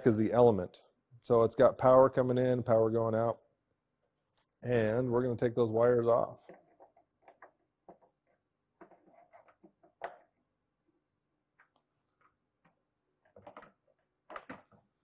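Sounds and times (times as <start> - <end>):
faint clicks and scrapes of wires: 4.0 - 4.6, 6.4 - 10.5.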